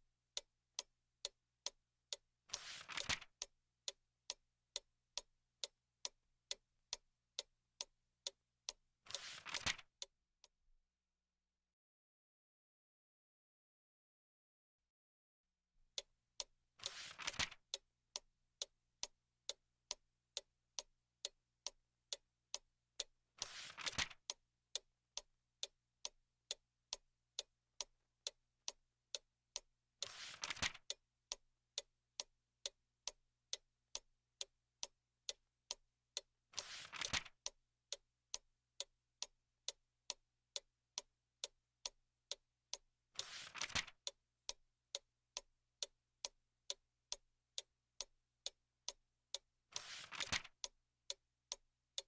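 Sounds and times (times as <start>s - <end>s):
clock ticking: 0.0s - 10.1s, 15.9s - 52.0s
book page turning: 2.6s - 3.2s, 9.1s - 9.8s, 16.8s - 17.5s, 23.4s - 24.1s, 30.1s - 30.8s, 36.6s - 37.3s, 43.2s - 43.9s, 49.8s - 50.5s.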